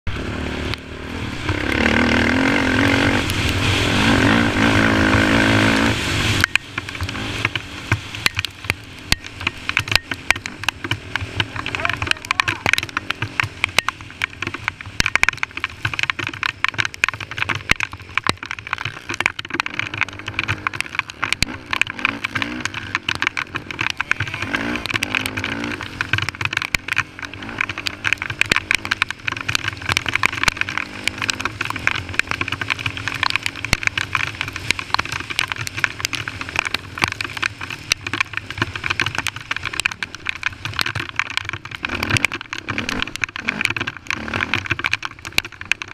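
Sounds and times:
quad bike engine revving: 0.1s - 40.8s, 41.6s - 45.9s
dense crackling clicks: 0.1s - 45.9s.

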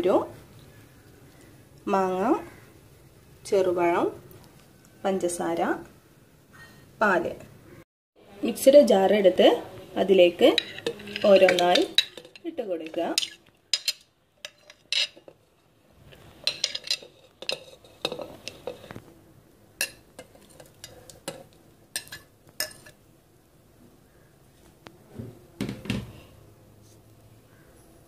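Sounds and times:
clinks against steel jar: 10.6s - 12.5s.

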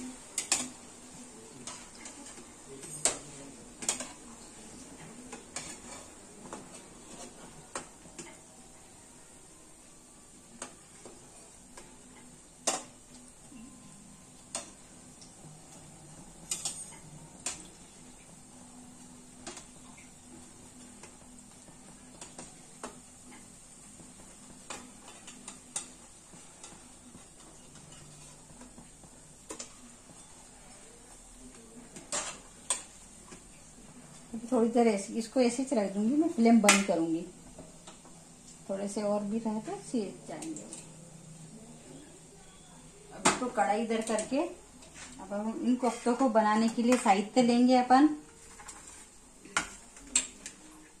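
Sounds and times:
frying oil hissing: 0.0s - 51.0s.

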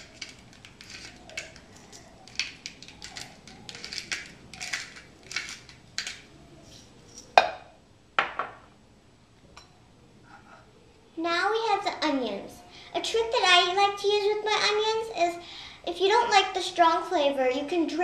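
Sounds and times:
kitchenware scratching: 0.0s - 7.4s.

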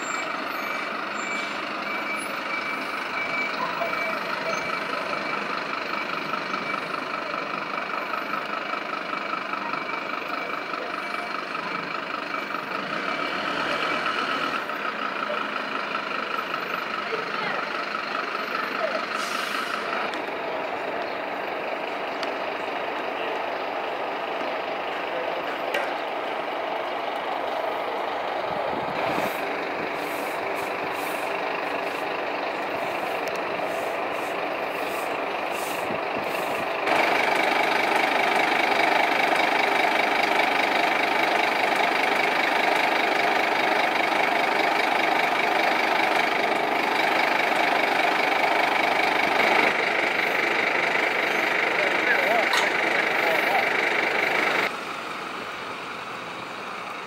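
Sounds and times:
diesel engine idling: 0.0s - 57.0s
stiff broom scraping road: 28.7s - 54.8s.

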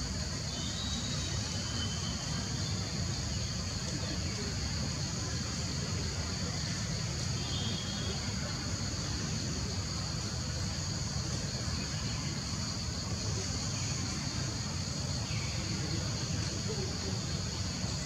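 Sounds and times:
insect chorus: 0.0s - 18.0s.

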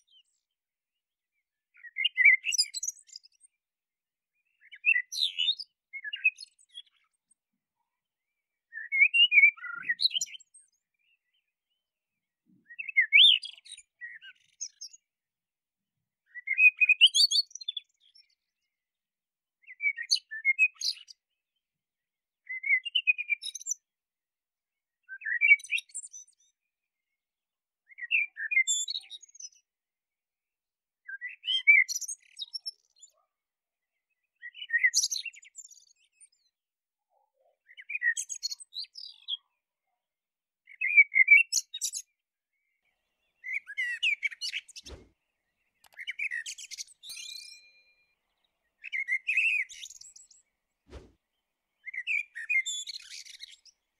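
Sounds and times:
blackbird singing: 1.8s - 3.2s, 4.6s - 7.1s, 8.7s - 10.5s, 12.6s - 15.0s, 16.3s - 17.9s, 19.6s - 21.1s, 25.1s - 26.0s, 27.9s - 29.3s, 31.1s - 32.8s, 34.4s - 35.8s, 37.6s - 39.4s, 40.7s - 42.1s, 43.2s - 48.0s, 48.7s - 50.4s, 51.8s - 53.8s.

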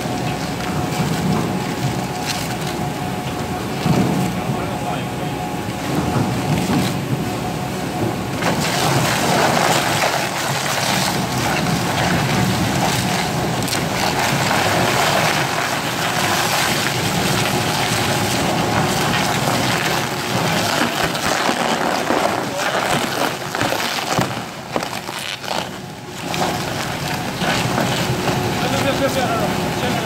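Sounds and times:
shredder tearing through bags: 8.4s - 29.2s.

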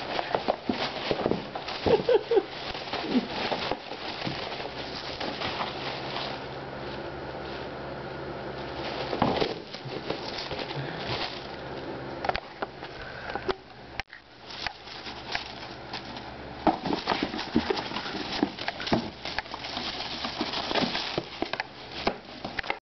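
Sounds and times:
tissue paper crinkling: 0.0s - 7.8s, 8.5s - 11.7s, 14.4s - 22.6s
cardboard box knocked and scraped: 16.6s - 19.2s.

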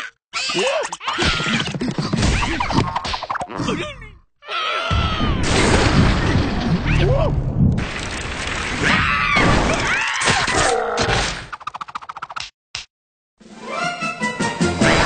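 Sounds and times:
squeaky cartoon character voices: 0.0s - 1.8s.

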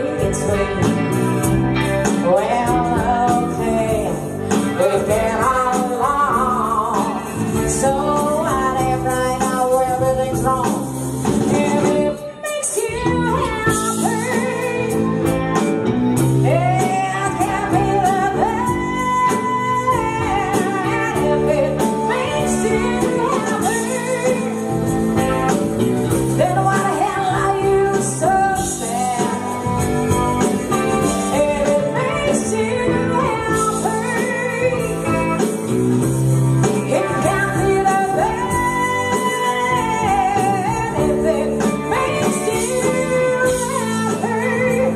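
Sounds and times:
bass guitar: 0.0s - 44.9s
drums: 0.0s - 44.9s
electric guitar: 0.0s - 44.9s
woman singing: 0.0s - 44.9s.

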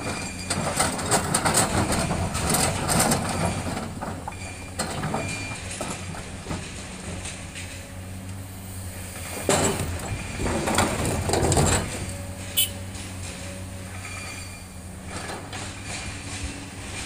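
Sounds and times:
boulders clattering into truck bed: 0.0s - 8.4s, 9.2s - 17.0s
excavator diesel engine running: 0.0s - 17.0s
rock clinking on metal: 11.4s - 16.6s.

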